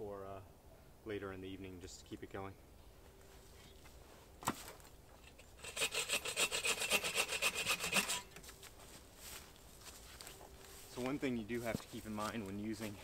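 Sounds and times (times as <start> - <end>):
hand saw cutting branch: 5.6 - 8.4.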